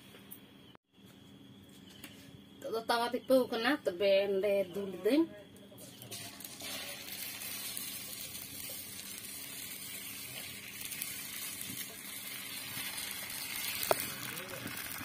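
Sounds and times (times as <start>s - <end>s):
egg batter sizzling on a hot pan: 5.7s - 15.0s.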